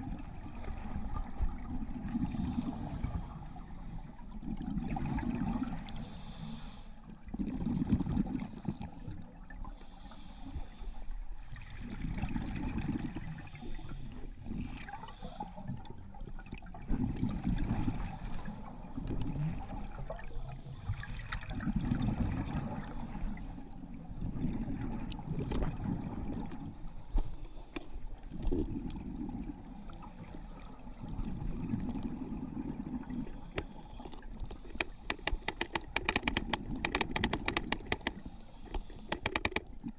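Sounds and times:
exhaled bubbles rumbling underwater: 0.0 - 6.2, 7.0 - 9.8, 11.3 - 38.3
hissing regulator inhalations: 5.9 - 7.0, 8.5 - 11.2, 33.1 - 36.4, 37.8 - 39.6.

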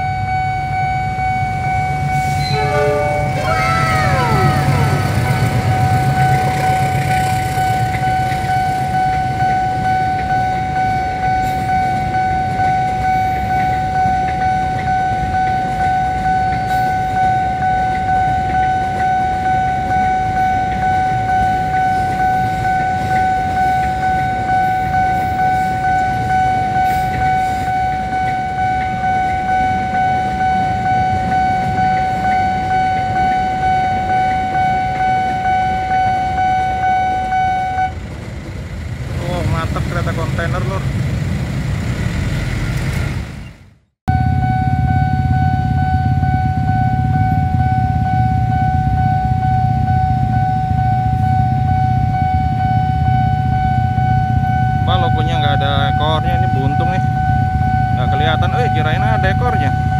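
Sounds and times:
level crossing bell ringing: 0.0 - 37.9
freight train rumbling: 0.0 - 59.9
train horn: 2.1 - 5.8.

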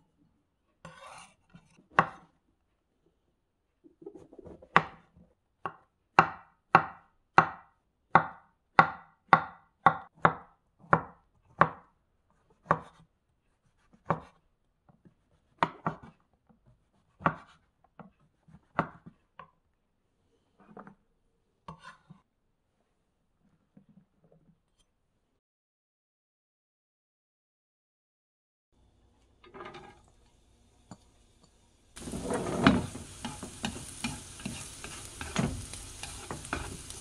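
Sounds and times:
knife chopping on wooden board: 0.9 - 2.3, 5.6 - 11.9, 12.5 - 13.1, 13.7 - 14.4, 15.4 - 16.2, 16.8 - 19.2, 32.6 - 37.0.

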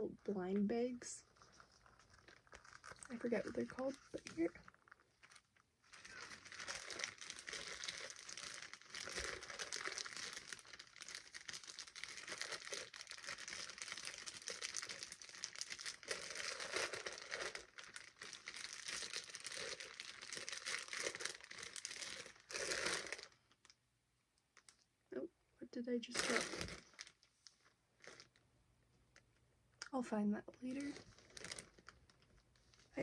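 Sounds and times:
plastic bag crinkling: 0.8 - 23.8, 26.1 - 28.4, 30.6 - 33.0.

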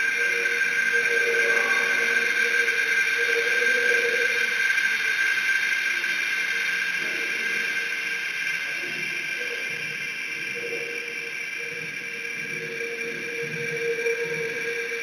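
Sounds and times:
low wavering tone: 0.0 - 5.2, 10.4 - 15.0
high held drone tones: 0.0 - 15.0
hiss: 0.0 - 15.0.

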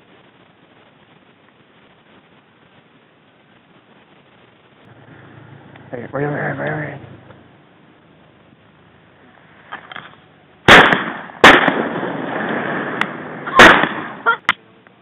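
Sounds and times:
softer sharp cracks: 9.7 - 14.6
rolling echo: 10.6 - 14.4
shotgun blasts: 10.7 - 14.3.

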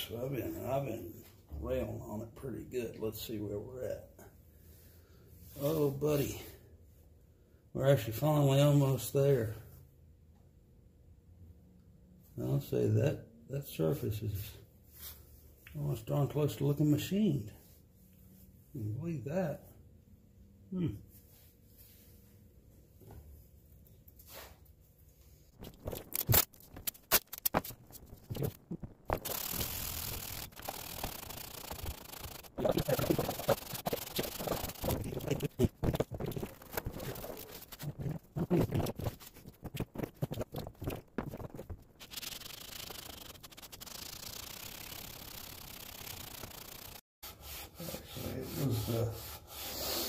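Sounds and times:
paper towel rubbing metal: 27.1 - 50.0.

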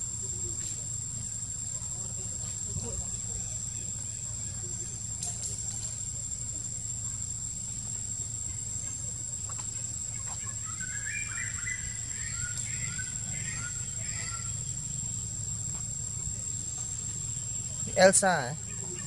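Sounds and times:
high insect drone: 0.0 - 19.0
bird chirping: 9.8 - 15.4.

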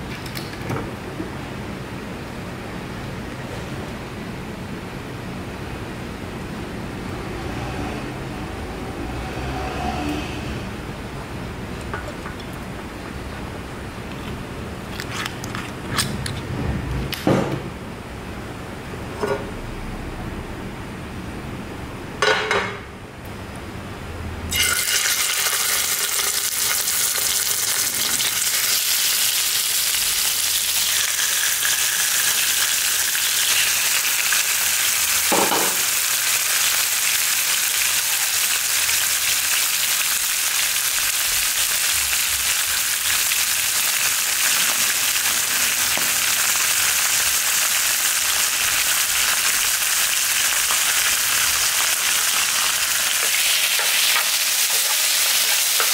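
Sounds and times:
meat sizzling in hot oil: 24.5 - 55.9.

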